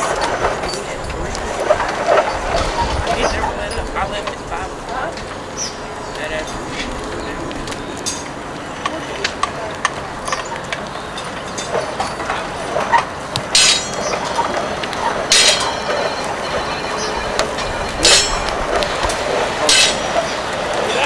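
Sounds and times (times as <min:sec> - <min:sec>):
steady hiss with crackles: 0:00.0 - 0:21.0
metallic clanks: 0:08.0 - 0:20.7.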